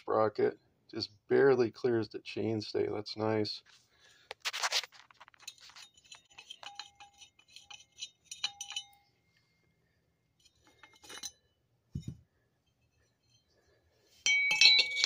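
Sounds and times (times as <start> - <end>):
metal bicycle parts clinking: 4.7 - 9.2, 10.4 - 15.0.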